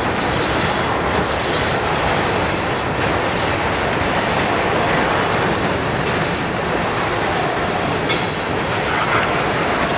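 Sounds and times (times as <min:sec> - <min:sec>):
train wheels on rails: 0:00.0 - 0:09.9.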